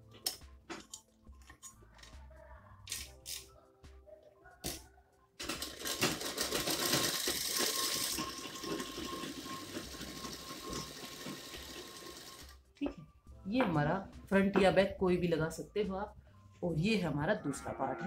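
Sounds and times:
sewing machine running: 5.5s - 12.5s.

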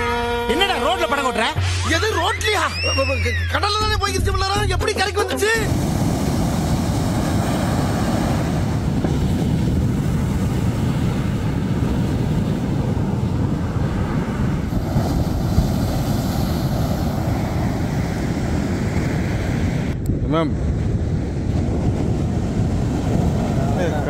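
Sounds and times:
surf breaking on beach: 5.5s - 24.0s
wind buffeting microphone: 5.6s - 24.0s.

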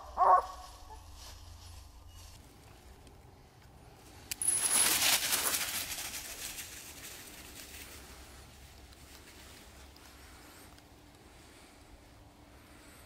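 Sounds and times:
dog rustling through dry leaves: 4.6s - 8.2s.

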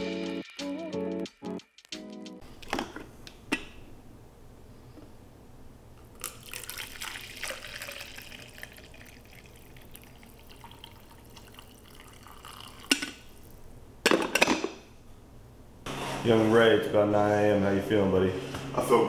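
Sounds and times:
coffee pouring into cup: 6.1s - 13.6s.

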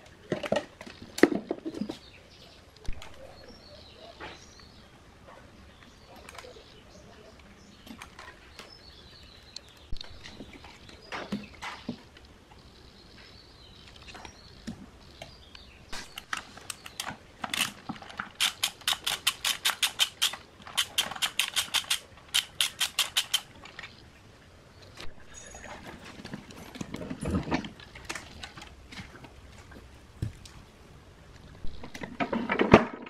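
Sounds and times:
ratchet wrench clicking: 18.4s - 23.5s.

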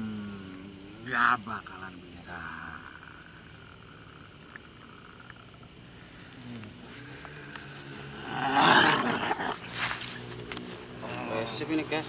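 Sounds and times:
crickets chirping: 0.0s - 12.0s
man growling cry: 8.0s - 9.6s.

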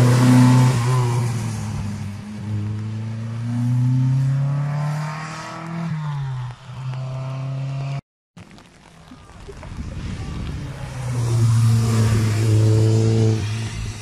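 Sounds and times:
car engine accelerating hard: 10.7s - 14.0s.

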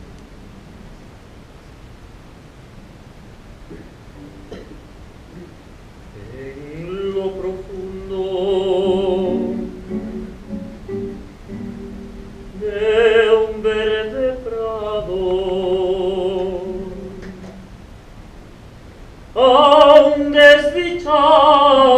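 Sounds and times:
acoustic guitar accompaniment: 3.7s - 5.6s, 6.2s - 17.8s
operatic singing voice: 6.1s - 10.1s, 12.6s - 17.5s, 19.4s - 21.9s.

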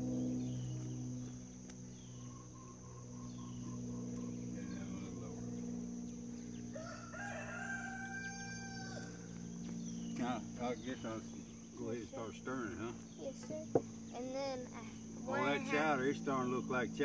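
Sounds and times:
high insect drone: 0.0s - 17.0s
low hum: 0.0s - 17.0s
rooster crowing: 6.6s - 9.4s.

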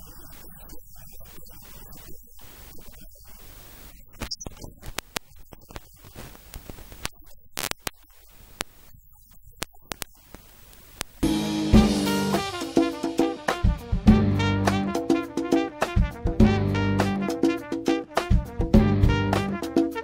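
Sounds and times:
faint hiss and static: 0.0s - 13.7s
crackling clicks: 0.3s - 11.2s.

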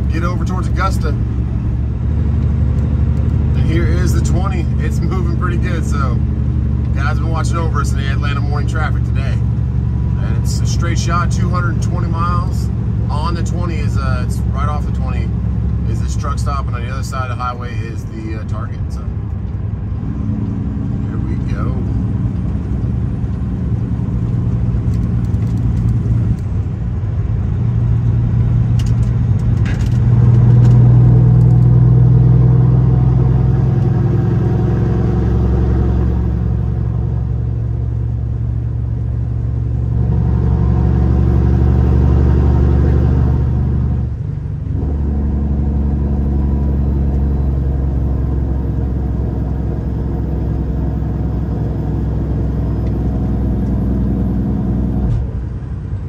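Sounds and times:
road noise: 0.0s - 56.0s
truck diesel engine droning: 0.0s - 56.0s.

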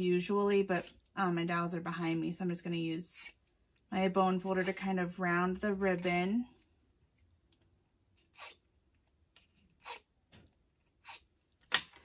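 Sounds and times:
bone folder scraping paper ribbon: 8.2s - 8.6s, 9.8s - 10.1s, 11.0s - 11.3s.

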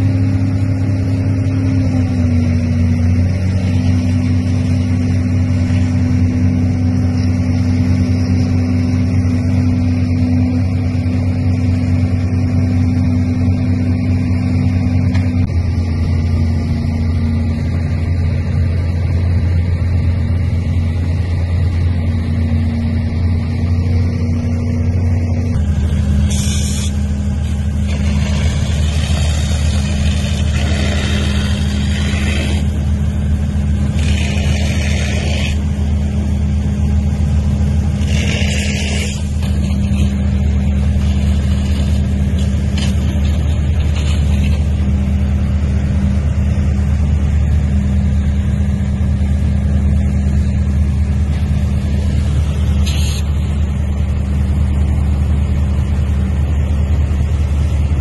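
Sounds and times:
boat engine droning: 0.0s - 58.0s
short bursts of hiss: 26.3s - 27.0s.

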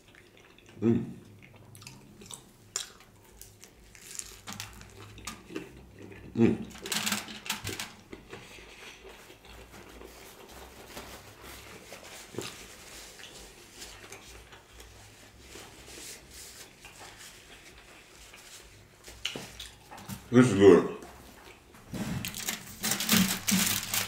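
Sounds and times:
wet chewing mouth sounds: 0.0s - 6.7s, 8.0s - 10.7s, 12.2s - 20.1s.

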